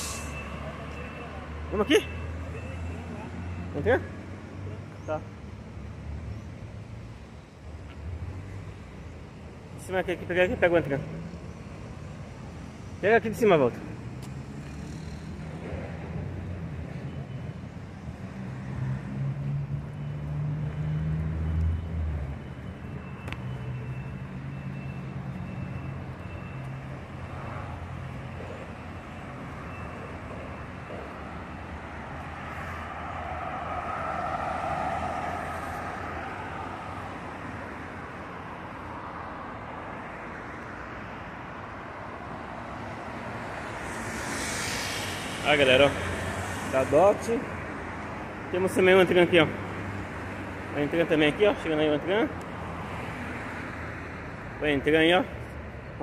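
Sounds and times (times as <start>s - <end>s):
bus diesel engine humming: 0.0s - 3.9s, 19.6s - 40.0s
higher-pitched vehicle noise: 0.0s - 4.0s, 18.4s - 39.2s, 41.9s - 54.0s
station traffic noise: 0.0s - 56.0s.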